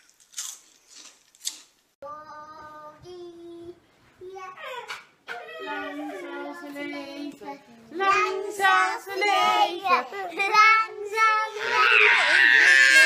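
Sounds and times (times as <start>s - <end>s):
children singing: 5.3s - 13.0s.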